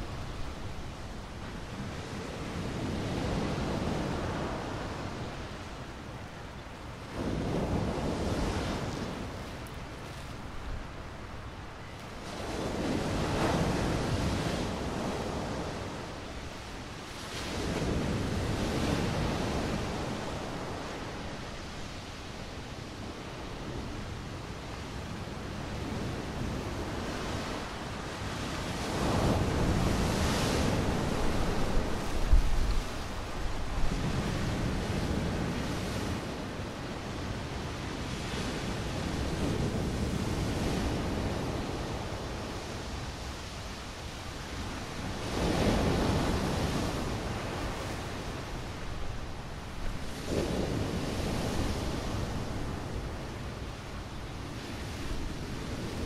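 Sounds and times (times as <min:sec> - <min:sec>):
stormy sea waves breaking: 0:00.0 - 0:56.0
wind buffeting microphone: 0:23.3 - 0:43.7.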